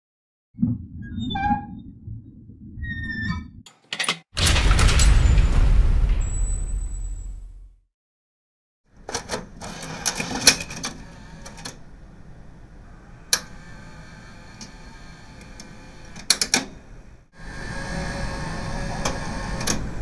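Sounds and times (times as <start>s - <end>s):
sharp mechanical clicks and clunks: 3.7s - 5.2s, 9.0s - 11.8s, 15.4s - 16.8s, 19.0s - 20.0s.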